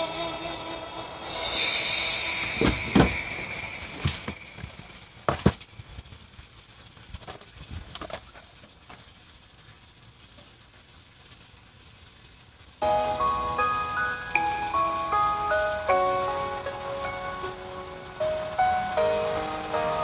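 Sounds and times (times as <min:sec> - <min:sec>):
low room hush: 0:00.0 - 0:05.2, 0:10.1 - 0:20.0
knocks and thumps: 0:02.6 - 0:05.6.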